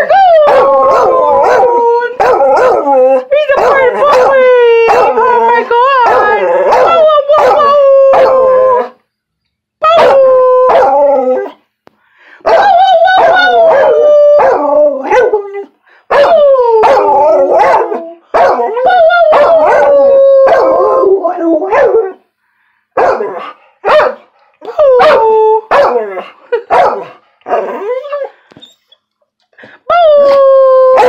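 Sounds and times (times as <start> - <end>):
dog howling: 0.1 - 4.3, 4.9 - 9.0, 9.9 - 11.5, 12.5 - 15.5, 16.1 - 22.2, 30.1 - 31.0
dog barking: 0.5 - 2.8, 3.6 - 5.2, 17.6 - 18.7, 23.0 - 24.3, 25.0 - 26.1, 26.7 - 27.7.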